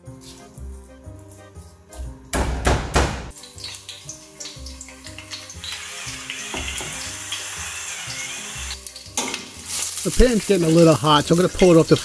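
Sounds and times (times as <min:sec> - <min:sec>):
garlic sizzling in oil: 0:03.3 - 0:12.0.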